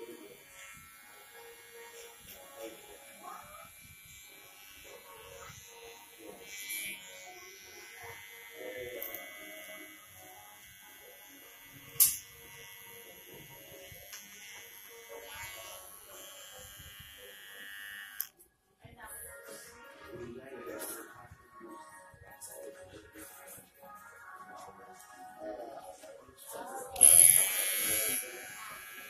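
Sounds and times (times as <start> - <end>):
electric hair trimmer buzzing: 0.0 - 18.3, 27.0 - 29.0.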